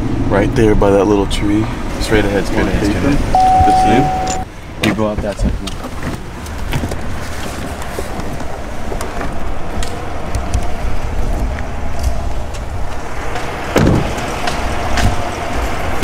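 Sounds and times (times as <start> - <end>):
truck road noise: 0.0 - 4.8, 5.6 - 16.0
wind rumbling on microphone: 5.4 - 16.0.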